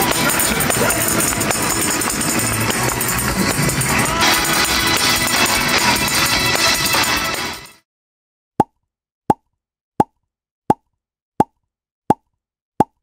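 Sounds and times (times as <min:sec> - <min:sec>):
people singing: 0:00.0 - 0:07.6
congregation gospel music: 0:00.0 - 0:07.7
tambourine shaking: 0:00.0 - 0:07.8.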